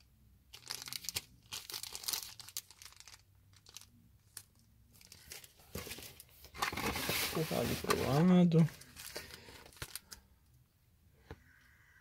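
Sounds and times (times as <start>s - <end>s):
plastic bags crinkling: 0.5s - 10.2s.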